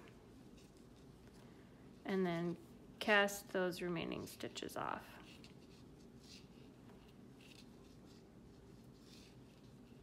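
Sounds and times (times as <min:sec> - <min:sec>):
knitting needles scraping: 0:00.0 - 0:02.8, 0:05.2 - 0:10.0.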